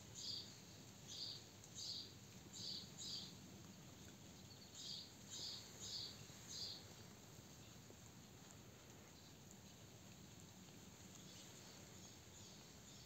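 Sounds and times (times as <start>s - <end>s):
faint low hum: 0.0s - 13.0s
bird chirping: 4.5s - 6.9s.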